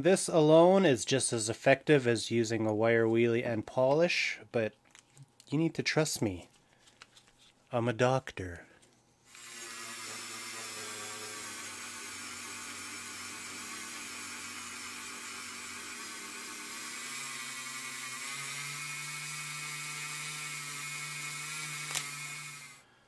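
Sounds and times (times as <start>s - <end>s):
rotary tool wire brush whine: 9.3s - 22.8s.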